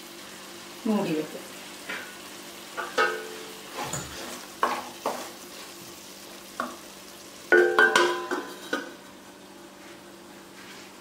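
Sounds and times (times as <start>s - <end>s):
steel plate clanking on pot: 2.8s - 4.8s, 7.5s - 8.9s.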